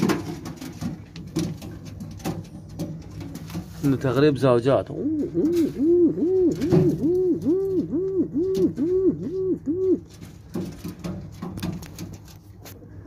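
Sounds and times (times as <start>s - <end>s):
pigeon cooing: 4.9s - 10.2s.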